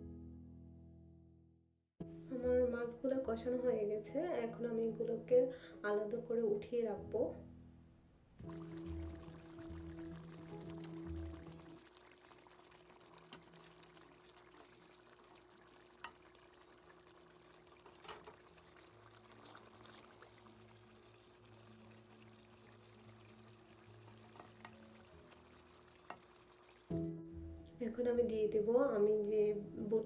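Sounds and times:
curry bubbling in pan: 8.4s - 27.0s
spatula tapping pan: 26.0s - 26.4s.

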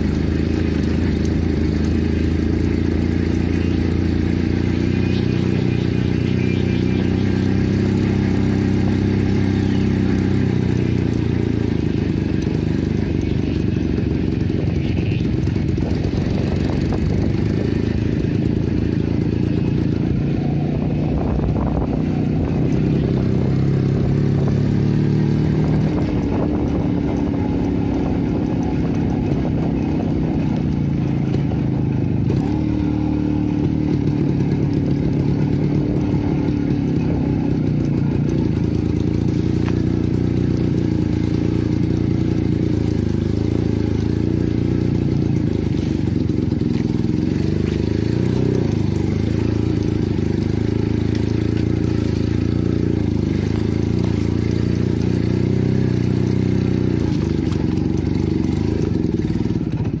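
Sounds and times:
motorcycle clattering on bumps: 0.0s - 60.0s
motorcycle engine running: 0.0s - 60.0s.

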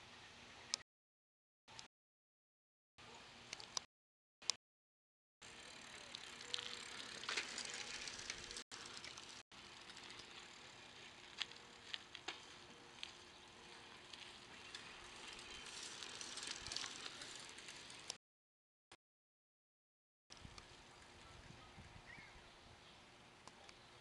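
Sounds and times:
bicycle tyres hissing on asphalt: 5.5s - 18.1s.

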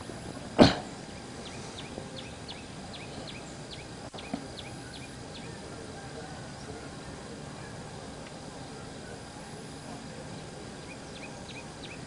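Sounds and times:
faint outdoor background noise: 0.0s - 12.0s
bird chirping: 0.8s - 5.6s, 10.3s - 12.0s.

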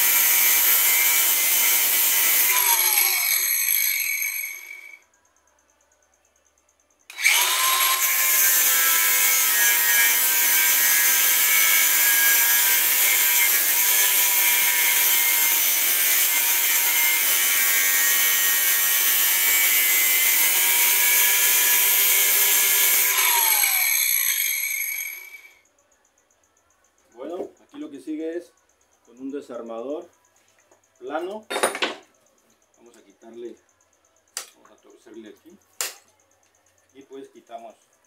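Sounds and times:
angle grinder cutting metal: 0.0s - 5.0s, 7.1s - 25.5s
grinder spinning down: 0.0s - 5.0s, 7.1s - 25.6s.

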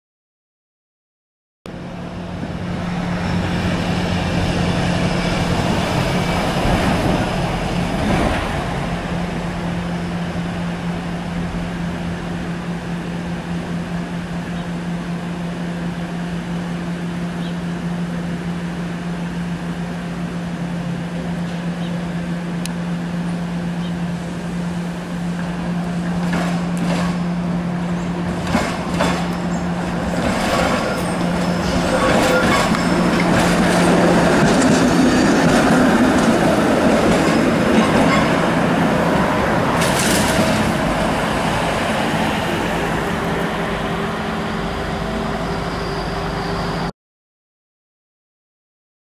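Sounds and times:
streetcar running on track: 1.7s - 46.9s
wheels clicking on rails: 28.0s - 38.8s.

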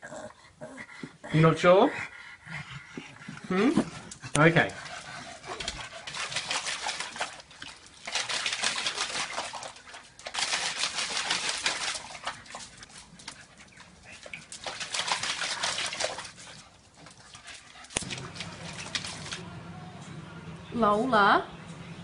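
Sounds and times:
dog sounds: 3.0s - 19.4s
dog splashing in water: 5.4s - 19.4s.

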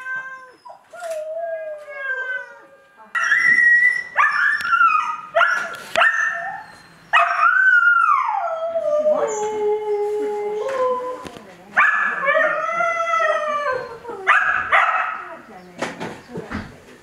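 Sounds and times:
cats meowing loudly: 0.0s - 1.2s.

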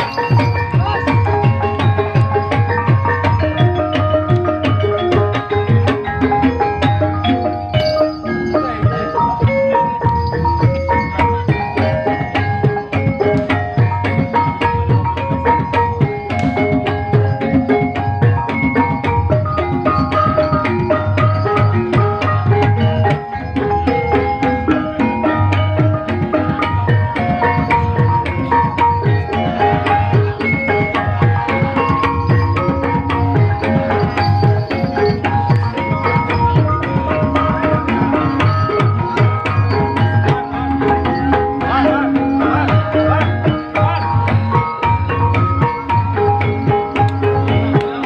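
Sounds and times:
hand drum patterns: 0.0s - 48.0s
tuned percussion melody: 0.0s - 48.0s.

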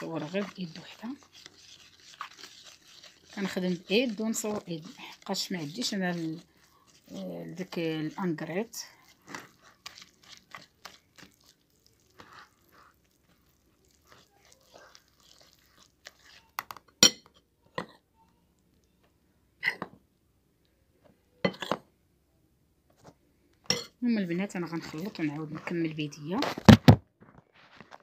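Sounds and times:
whisk clinking against bowl: 0.0s - 8.4s
whisk scraping dough in bowl: 0.0s - 16.7s, 24.5s - 26.0s.

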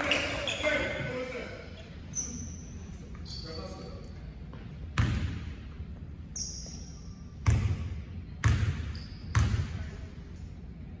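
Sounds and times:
basketball bouncing in a hall: 0.0s - 1.2s, 4.4s - 10.2s.

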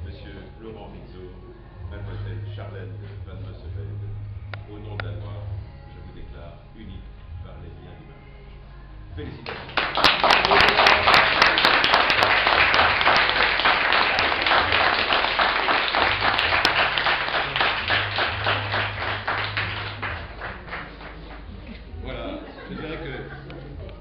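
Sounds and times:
small group applauding: 9.4s - 22.0s.

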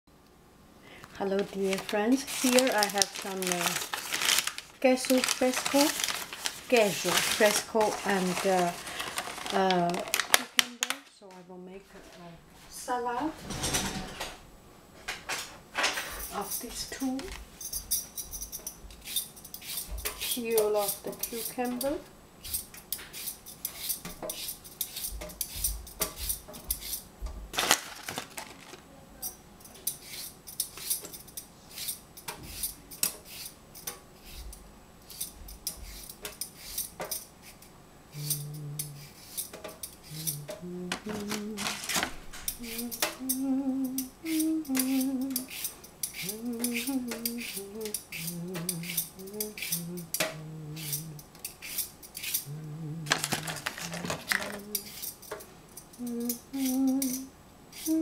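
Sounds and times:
peeler scraping cucumber: 1.6s - 8.8s, 16.3s - 27.0s, 29.2s - 52.5s, 53.1s - 55.3s, 56.2s - 58.0s
person humming: 38.1s - 39.2s, 40.0s - 45.6s, 46.2s - 51.3s, 52.4s - 55.0s, 55.9s - 58.0s.

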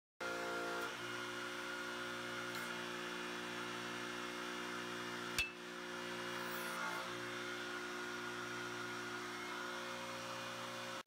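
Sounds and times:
sharp ringing snap: 5.4s - 5.6s.

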